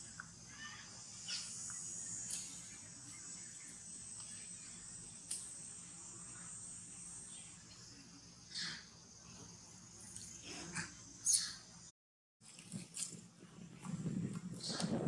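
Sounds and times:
high-pitched insect chorus: 0.0s - 10.4s.

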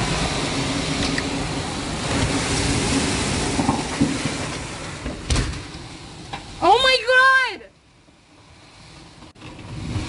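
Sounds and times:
heavy rain: 0.0s - 10.0s
storm wind: 0.0s - 10.0s
thump: 5.0s - 5.7s.

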